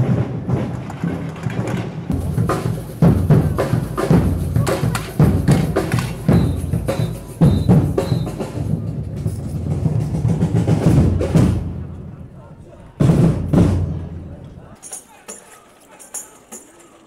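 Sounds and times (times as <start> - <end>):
percussion band drumming: 0.0 - 12.1, 13.0 - 17.0.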